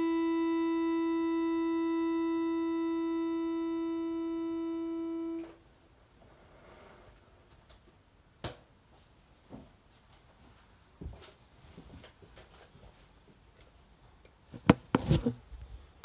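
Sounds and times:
piano accordion long note: 0.0s - 5.4s
faint handling sounds: 9.9s - 16.0s.

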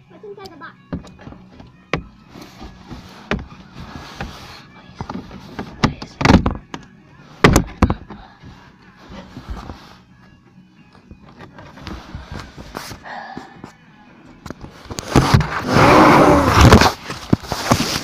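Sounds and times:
phone brushing cardboard: 2.4s - 5.7s.

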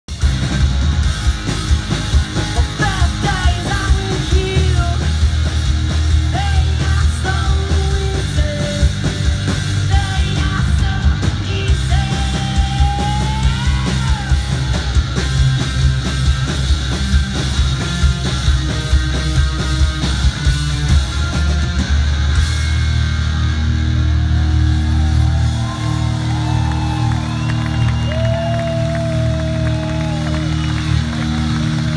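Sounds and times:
bass guitar: 0.0s - 31.9s
driving drum beat: 0.0s - 31.9s
electric guitar: 0.1s - 31.9s
person singing: 2.6s - 5.2s, 6.3s - 9.2s, 9.8s - 14.8s.

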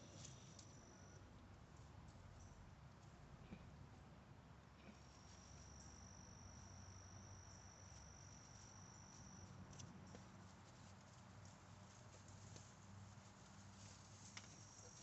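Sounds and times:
high-pitched insect trill: 5.1s - 10.2s
piglets rustling straw: 10.6s - 15.0s.

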